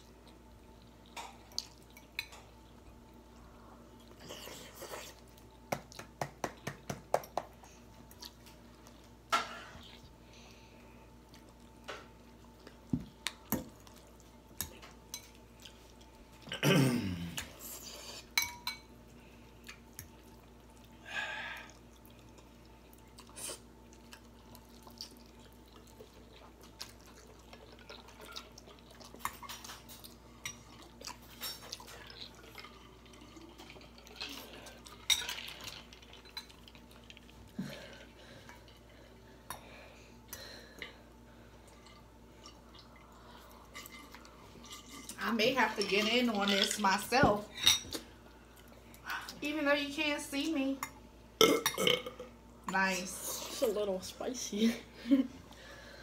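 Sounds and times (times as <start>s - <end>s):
loud low burp: 51.4s - 52.2s.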